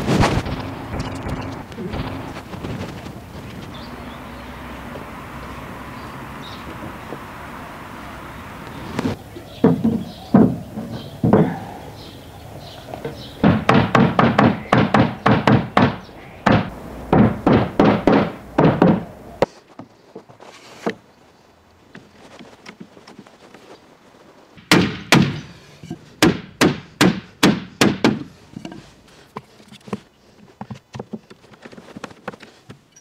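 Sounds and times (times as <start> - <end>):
hollow wooden thunks: 0.0 - 3.9, 9.0 - 11.8, 13.0 - 21.0, 24.6 - 32.9.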